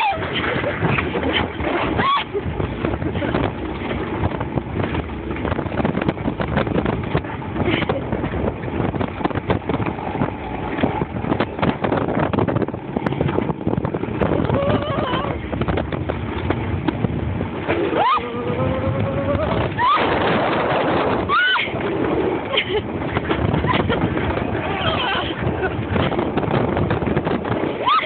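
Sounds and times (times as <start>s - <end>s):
coaster wheels rattling on rails: 0.0s - 28.0s.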